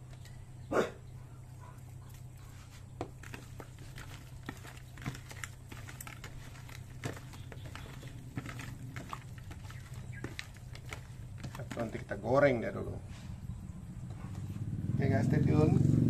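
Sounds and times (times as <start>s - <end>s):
steady low hum: 0.0s - 16.0s
hands squishing raw chicken: 2.0s - 12.2s.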